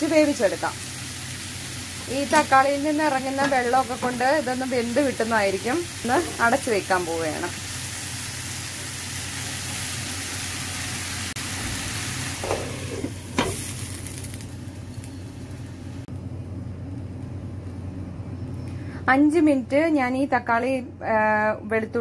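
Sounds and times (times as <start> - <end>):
vegetables sizzling in oil: 0.0 - 16.1.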